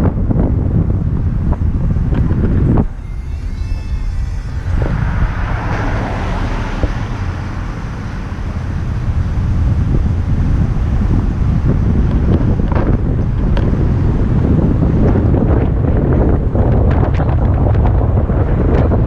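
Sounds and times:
road and traffic noise: 0.0 - 19.0
wind buffeting microphone: 0.0 - 19.0
vehicle passing close by: 2.4 - 15.4.

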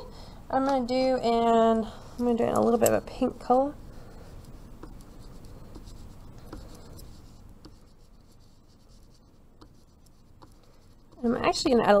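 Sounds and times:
oil pastel scratching on paper: 2.6 - 12.0.

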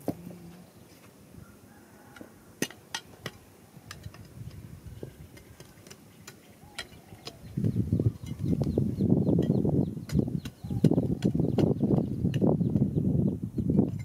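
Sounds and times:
tool knocking against rocks: 9.4 - 12.5.

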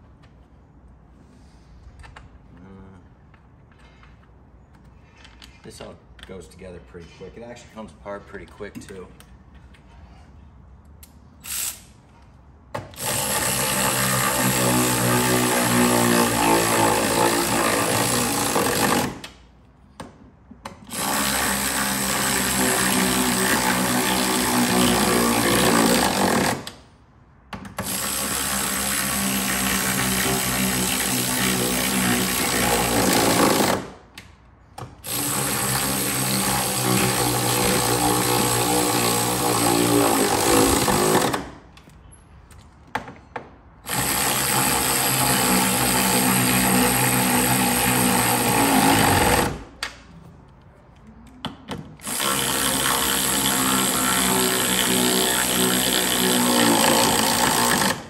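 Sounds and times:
cordless power tool motor whine: 52.0 - 57.9.

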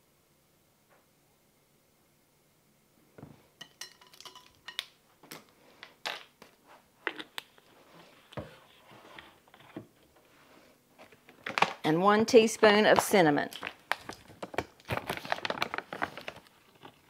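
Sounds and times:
kitchen items clinking on countertop: 3.6 - 5.0.

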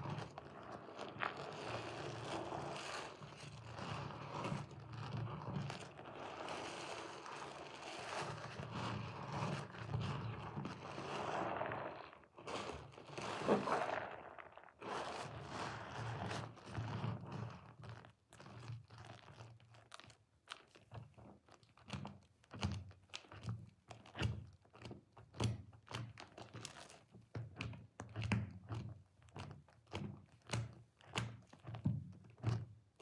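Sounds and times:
sponge squelching: 0.0 - 17.3.

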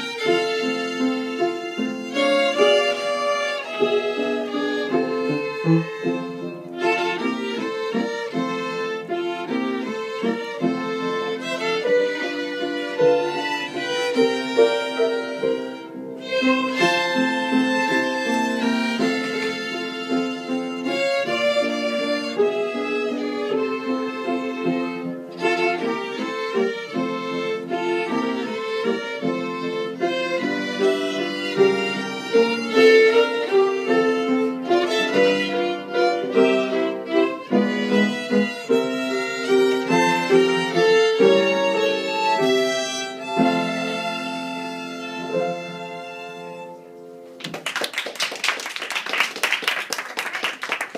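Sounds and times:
violins playing slow tune: 0.0 - 47.0
audience applause: 47.4 - 50.9.

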